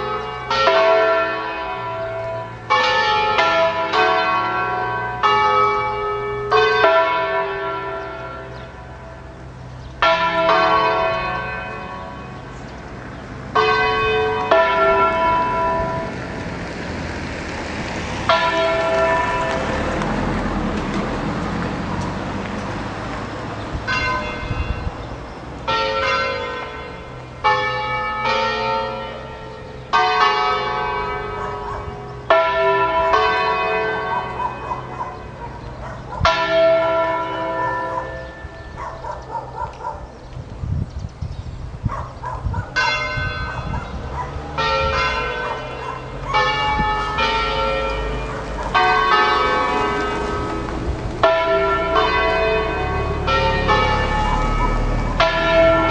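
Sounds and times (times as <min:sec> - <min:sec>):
church bells ringing: 0:00.0 - 0:16.6, 0:18.1 - 0:22.6, 0:23.6 - 0:40.3, 0:41.9 - 0:55.9.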